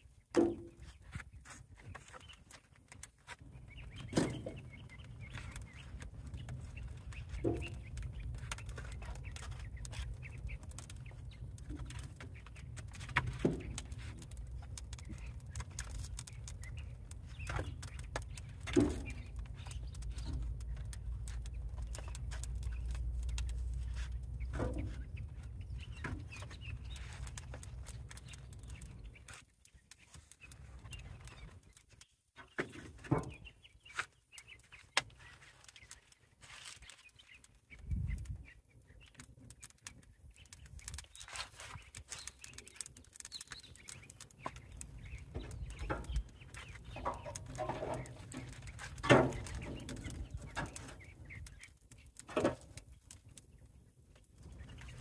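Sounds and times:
wood and grate clanking on barrel: 0.3 - 0.8, 3.8 - 5.6, 7.2 - 9.7, 13.0 - 14.3, 16.2 - 20.7, 24.4 - 25.1, 32.4 - 33.5, 45.3 - 51.2
chickens clucking: 3.4 - 20.6, 42.2 - 53.7.

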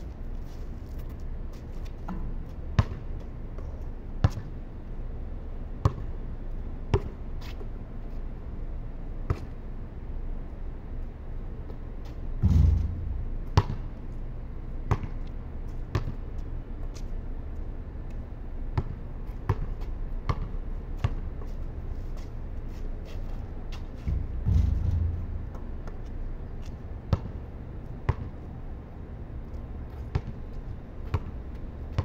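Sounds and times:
basketball bouncing on concrete: 2.1 - 3.1, 5.8 - 6.1, 12.4 - 14.0, 14.9 - 15.2, 15.9 - 16.2, 18.8 - 21.2, 24.1 - 27.3, 30.1 - 30.4, 31.0 - 32.0.

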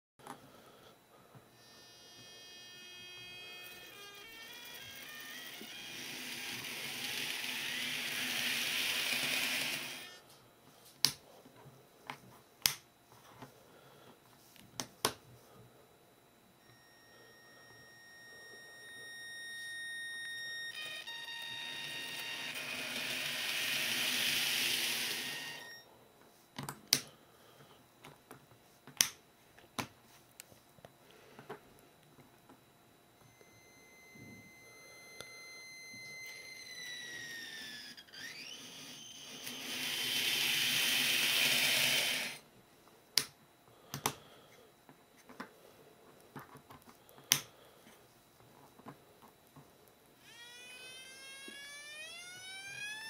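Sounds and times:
motor whining tones: 1.6 - 10.2, 16.6 - 25.9, 33.2 - 42.4, 50.2 - 53.0.

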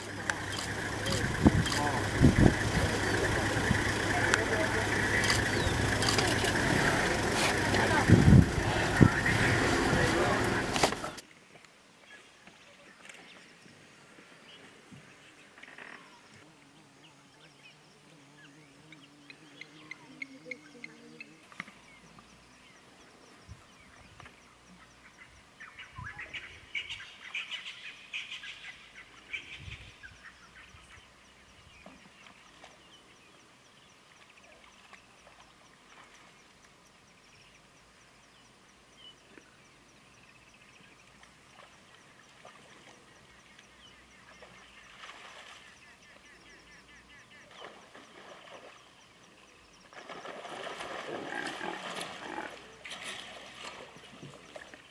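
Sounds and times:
drawn-out low animal call: 0.0 - 11.2, 50.2 - 54.8
high chirping and twittering: 4.2 - 6.6.

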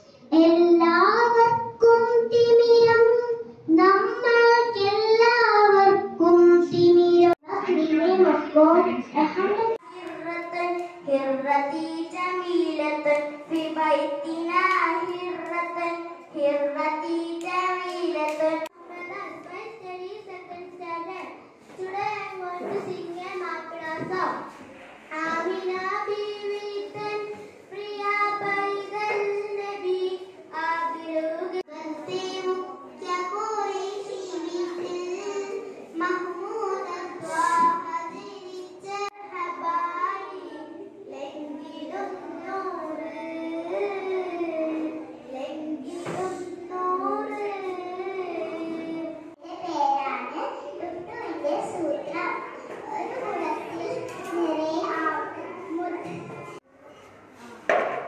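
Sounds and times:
girl singing unaccompanied: 0.0 - 21.0, 25.1 - 50.4.

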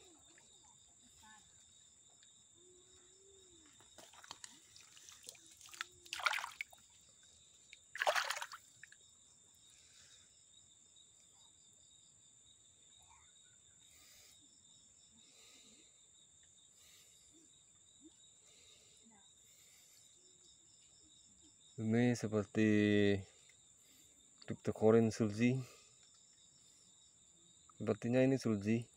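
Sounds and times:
water dripping: 4.0 - 6.9, 7.7 - 9.0
hand splashing in stream water: 4.2 - 6.8, 7.9 - 8.8.

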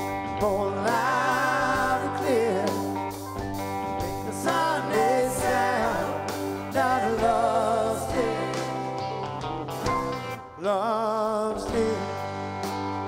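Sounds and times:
electric guitar: 0.0 - 13.0
keyboards: 0.0 - 13.0
person singing: 0.2 - 3.1, 4.2 - 8.9, 10.4 - 12.5.

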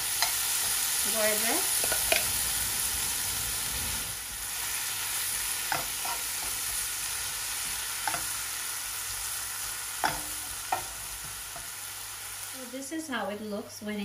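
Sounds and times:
butter sizzling in frying pan: 0.0 - 13.6.

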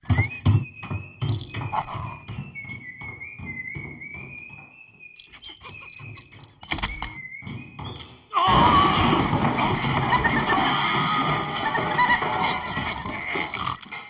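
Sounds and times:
thin wavering whistle-like tone: 0.1 - 8.0
loud dense din with squealing glides: 8.4 - 13.2.

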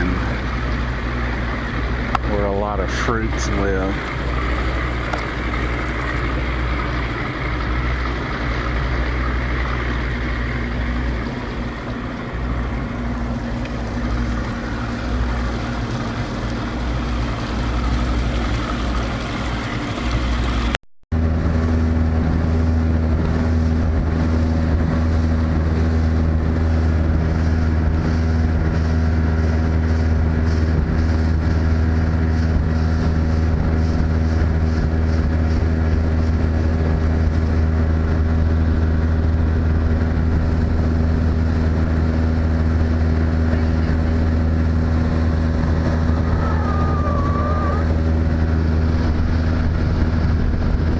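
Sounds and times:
motorboat engine hum: 0.0 - 50.9
rushing water: 0.0 - 50.9.

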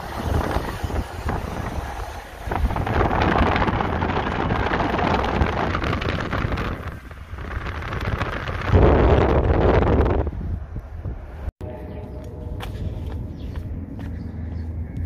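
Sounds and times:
wind rushing over microphone: 0.0 - 11.8
moving car rumble: 0.0 - 15.0.

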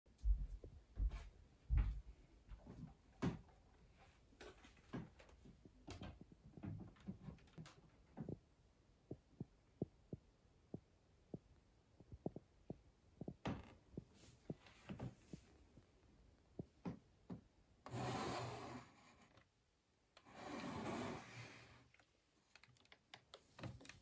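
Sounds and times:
soft footsteps: 0.2 - 8.4, 9.1 - 17.5.

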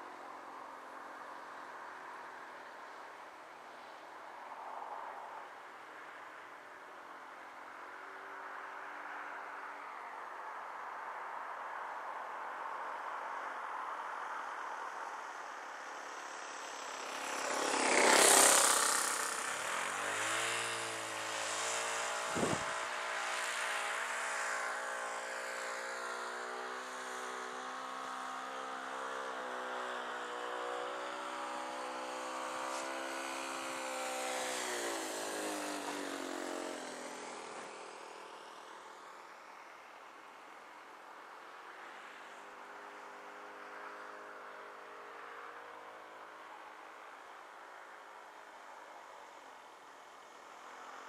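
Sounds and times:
model aeroplane engine droning: 14.4 - 40.3.

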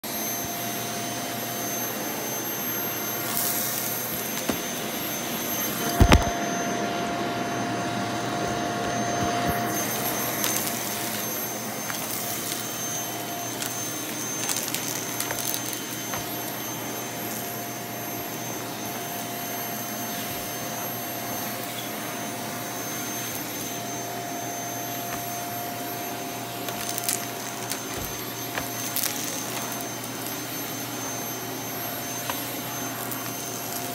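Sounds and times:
vacuum cleaner running: 0.0 - 33.9.

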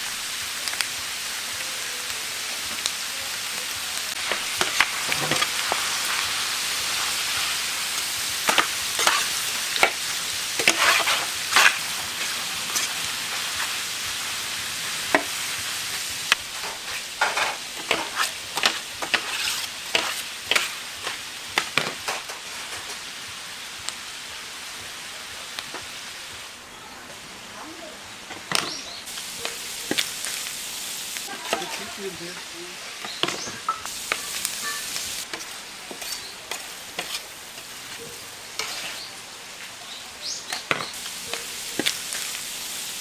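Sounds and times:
meat sizzling on a griddle: 0.0 - 27.0, 27.6 - 43.0
metal spatulas scraping: 8.5 - 9.9, 10.6 - 11.9, 16.6 - 20.8, 33.0 - 37.3, 38.6 - 39.1.

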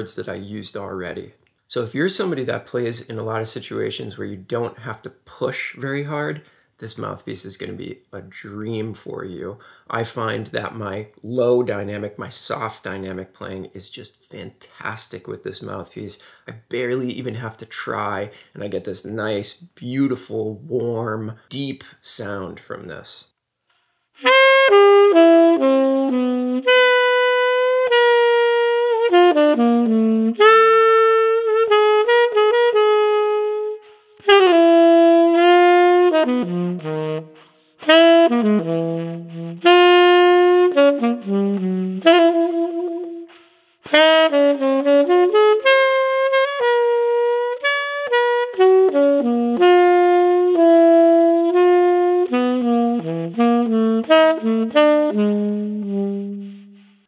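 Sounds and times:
tenor saxophone jazz solo: 24.1 - 57.0
player breathing: 43.3 - 43.8, 56.3 - 57.0.

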